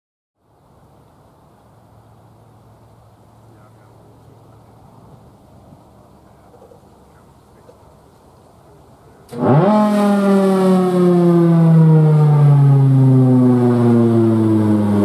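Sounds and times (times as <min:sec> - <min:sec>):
warning siren wailing: 0:09.4 - 0:15.0.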